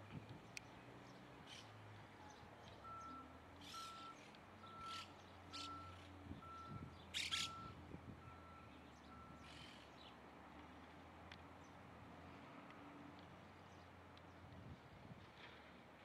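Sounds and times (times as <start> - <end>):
vehicle reversing alarm beeping: 2.8 - 9.8
parakeets squawking: 7.2 - 7.5.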